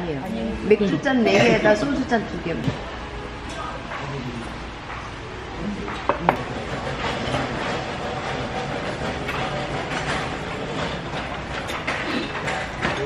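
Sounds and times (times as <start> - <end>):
restaurant background noise: 0.0 - 13.0
dishes and utensils clinking: 5.8 - 13.0.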